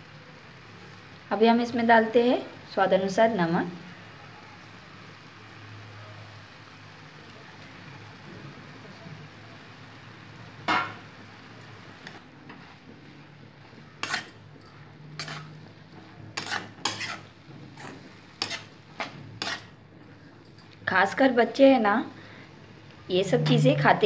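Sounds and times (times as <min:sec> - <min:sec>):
metal spatula scraping wok: 0:12.0 - 0:20.0, 0:23.1 - 0:24.0
low steady hum: 0:22.1 - 0:24.0.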